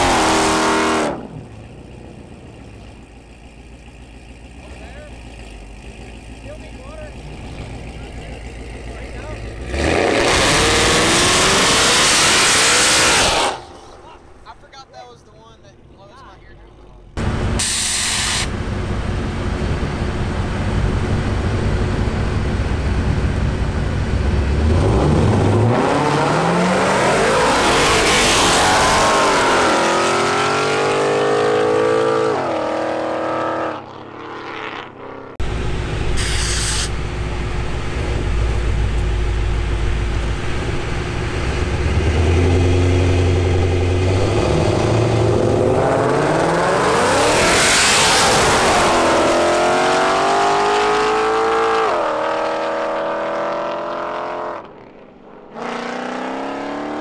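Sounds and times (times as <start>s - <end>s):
cars accelerating hard: 0.0s - 1.5s, 8.9s - 13.8s, 19.6s - 35.4s, 41.3s - 57.0s
car engines revving: 0.0s - 16.0s, 16.6s - 57.0s
car engines idling loudly: 1.4s - 9.8s, 15.7s - 24.6s.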